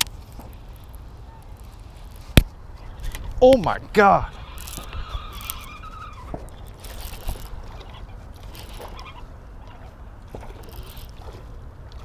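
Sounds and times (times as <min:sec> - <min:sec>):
wind on microphone: 0:00.0 - 0:12.0
fishing reel clicks and knocks: 0:04.6 - 0:09.1, 0:10.3 - 0:11.2.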